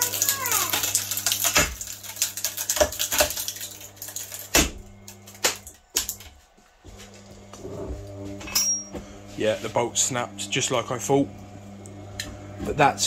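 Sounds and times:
clicks and cracks: 0.0 - 6.2.

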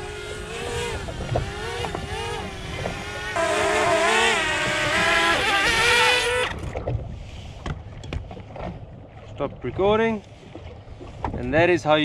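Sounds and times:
drone propellers whining: 0.0 - 6.7.

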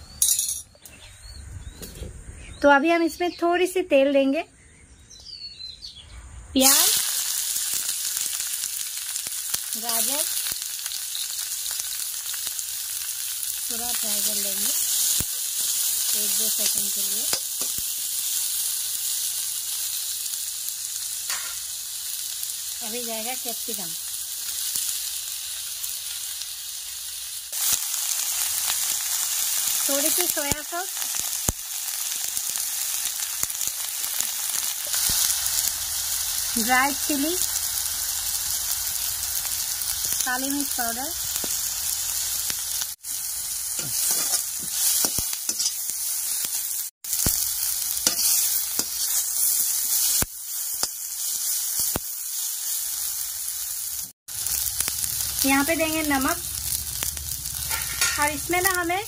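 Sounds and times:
vegetables sizzling in hot oil: 6.6 - 59.0
spatula scraping a pan: 43.8 - 45.9, 48.0 - 50.2.

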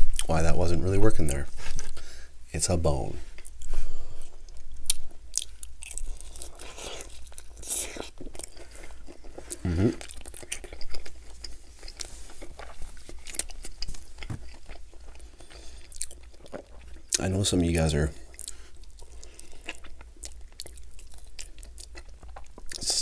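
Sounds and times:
wet chewing and lip smacks: 3.4 - 17.2, 18.3 - 22.9
person humming: 9.6 - 10.0.

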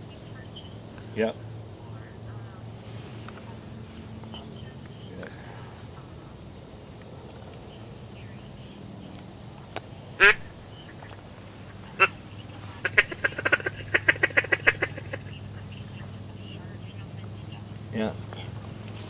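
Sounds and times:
duck call quacking: 10.2 - 15.7.

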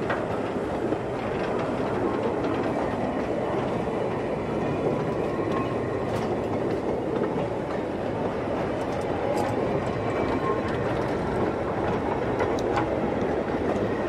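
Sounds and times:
iron wheels rumbling on rails: 0.0 - 14.0.

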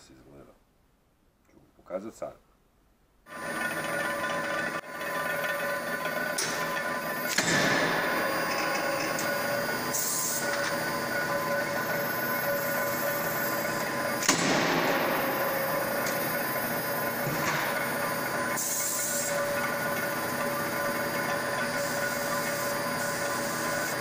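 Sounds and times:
machinery humming: 3.3 - 24.0
heavy metal strike: 14.2 - 15.8.

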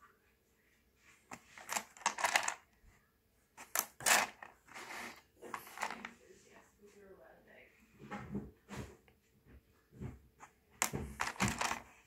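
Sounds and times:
stones clicking in plastic tub: 1.3 - 2.6, 3.7 - 4.8, 5.5 - 6.1, 10.8 - 11.9.

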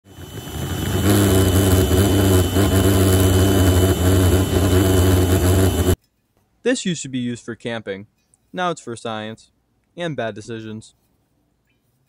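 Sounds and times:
electric blower: 0.0 - 6.0
pulsejet low buzz: 0.1 - 6.0.

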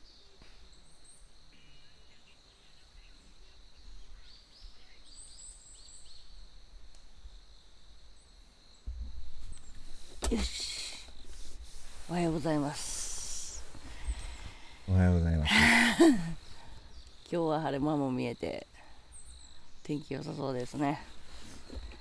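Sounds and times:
insect drone: 0.0 - 22.0
small birds chirping: 0.0 - 22.0.

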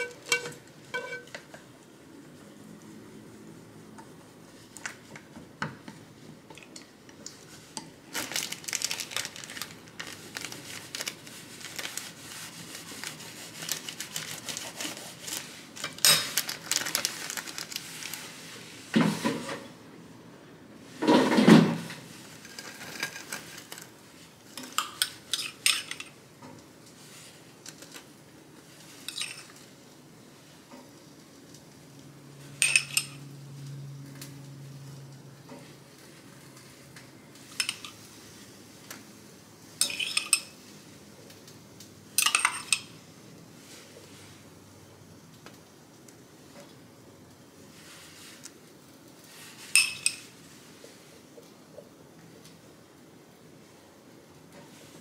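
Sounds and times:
chopsticks beating eggs in bowl: 10.1 - 16.2
metal spoon clinking on glass: 39.8 - 40.5, 42.2 - 42.9, 49.8 - 50.3.

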